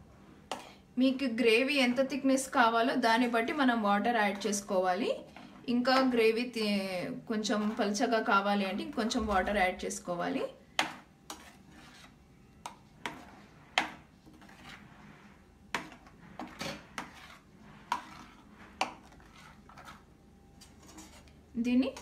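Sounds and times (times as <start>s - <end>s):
spoon scraping against pan: 7.3s - 8.5s, 10.8s - 22.0s.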